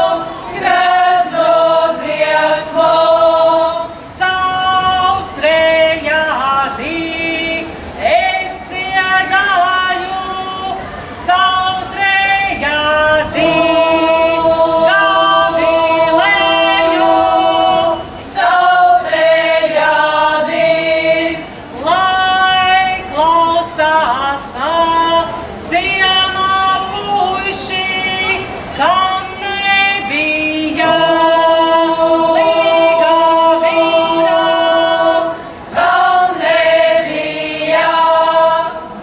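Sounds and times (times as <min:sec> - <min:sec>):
women singing folk song together: 0:00.0 - 0:39.0.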